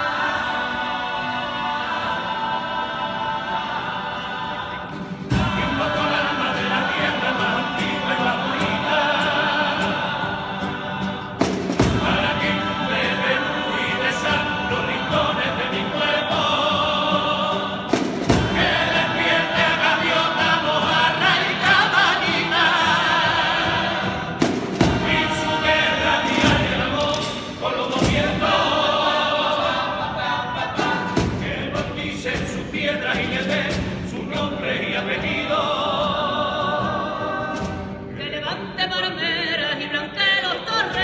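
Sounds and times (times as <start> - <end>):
male vocal group singing in harmony: 0.0 - 41.0
sharp percussive hits: 17.8 - 34.6.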